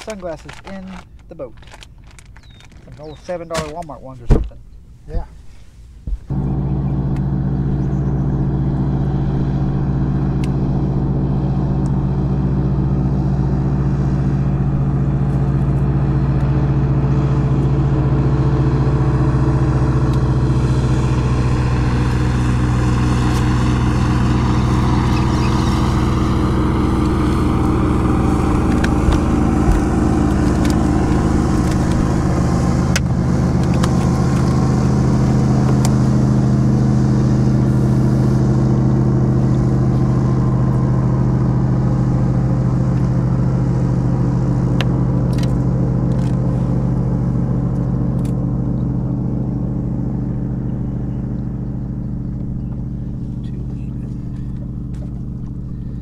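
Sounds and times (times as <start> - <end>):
outboard motor running: 0.0 - 3.9, 6.3 - 56.0.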